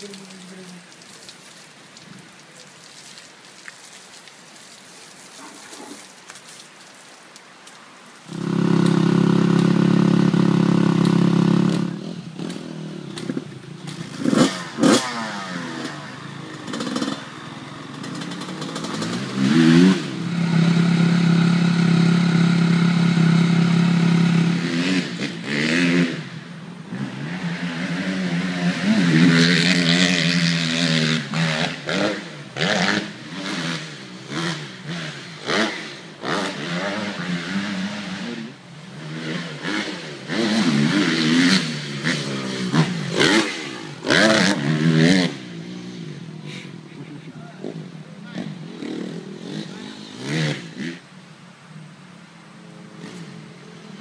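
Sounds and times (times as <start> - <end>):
dirt bike engine revving: 8.3 - 51.0.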